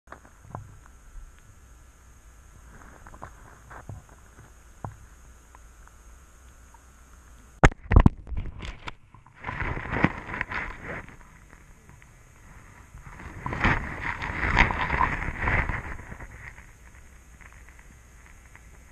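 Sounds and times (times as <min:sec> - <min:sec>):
faint underwater ticks: 0:00.1 - 0:18.9
scraping and rustling: 0:02.6 - 0:05.0, 0:08.3 - 0:18.9.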